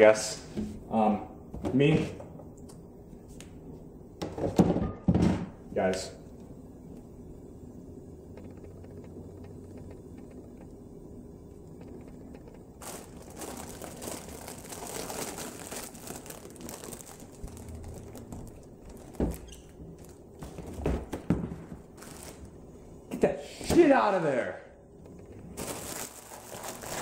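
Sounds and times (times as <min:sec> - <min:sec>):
low steady hum: 0:00.0 - 0:27.0
plastic bag crinkling: 0:12.8 - 0:20.5, 0:21.8 - 0:22.6, 0:25.5 - 0:27.0.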